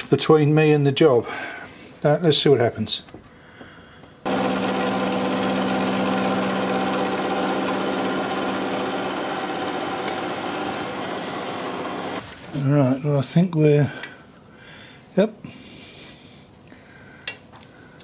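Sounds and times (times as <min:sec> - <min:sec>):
milling machine cutting metal: 0:04.3 - 0:12.2.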